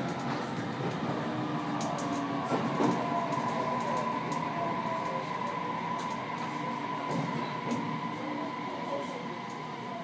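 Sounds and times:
electric train running: 0.0 - 10.0.

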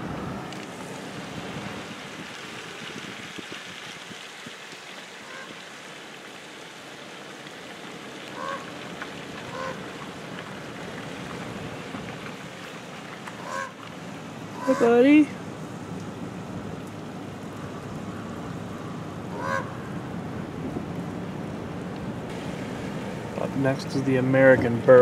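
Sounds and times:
car tyres on unpaved road: 0.0 - 25.0
honk-like bird calls: 5.2 - 5.6, 8.4 - 8.7, 9.5 - 9.8, 13.4 - 13.8, 14.6 - 15.0, 19.3 - 19.9.

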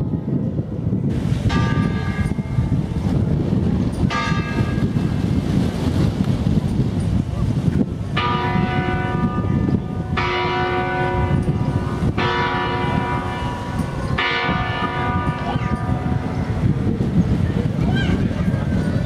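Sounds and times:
church bell tolling: 1.4 - 2.9, 3.9 - 5.1, 8.2 - 16.8.

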